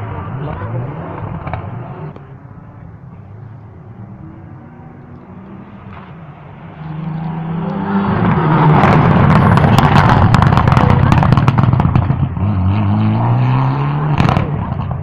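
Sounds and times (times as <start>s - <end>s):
rally car engine passing: 0.0s - 15.0s
sharp exhaust pops and cracks: 8.8s - 12.4s.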